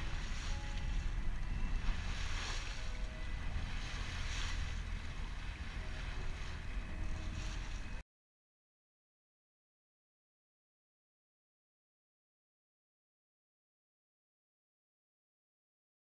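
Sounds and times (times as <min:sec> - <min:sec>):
low rumble: 0:00.0 - 0:08.0
rush of the sea: 0:00.0 - 0:08.0
wind buffeting microphone: 0:00.0 - 0:08.0.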